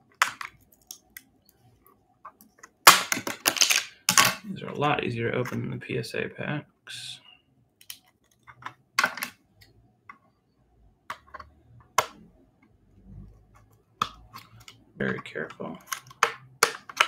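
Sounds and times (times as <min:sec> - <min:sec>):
plastic case clicking and tapping: 0:11.1 - 0:12.2, 0:14.0 - 0:17.0.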